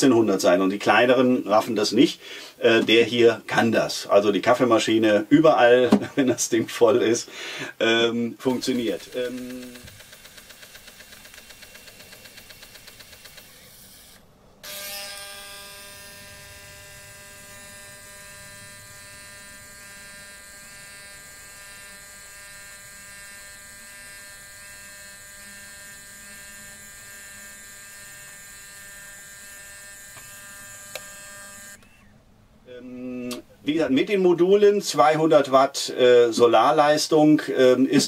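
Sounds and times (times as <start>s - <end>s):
coffee machine frothing hum: 8.4s - 14.0s
pump buzzing: 8.5s - 32.0s.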